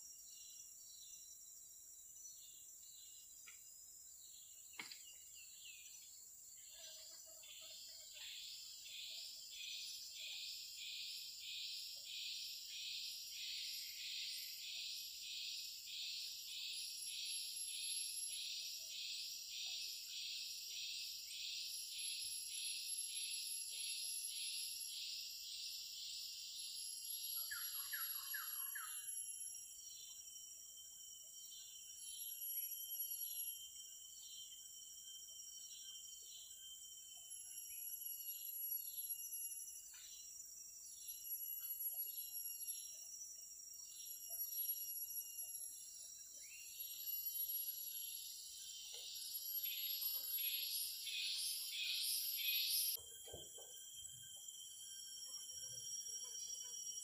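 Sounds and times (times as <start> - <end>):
high insect hum: 0.0 - 57.0
pulsing insect chorus: 0.0 - 57.0
bird chirps: 2.3 - 30.2, 43.8 - 57.0.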